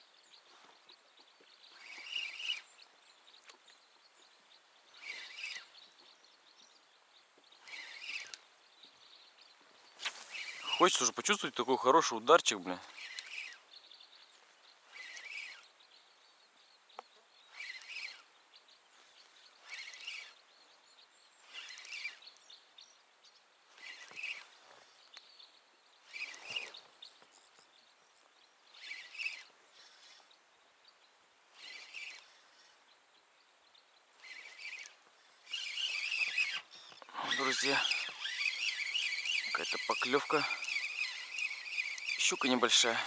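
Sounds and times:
spinning reel cranking: 1.8 - 2.7, 5.0 - 5.8, 7.6 - 8.4, 10.1 - 13.6, 14.9 - 15.7, 17.5 - 18.3, 19.6 - 20.4, 21.4 - 22.3, 23.7 - 24.6, 26.1 - 27.5, 28.7 - 30.4, 31.5 - 32.8, 34.2 - 43.0.

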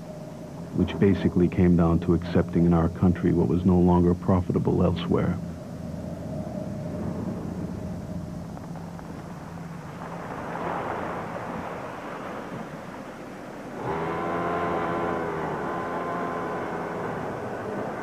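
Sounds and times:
lorry engine humming: 0.0 - 18.0
waves washing over rocky shore: 9.9 - 13.8.

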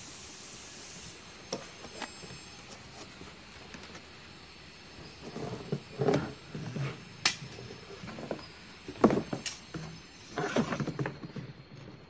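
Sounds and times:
plastic hose rustling and scraping: 1.5 - 4.1, 5.2 - 12.0.

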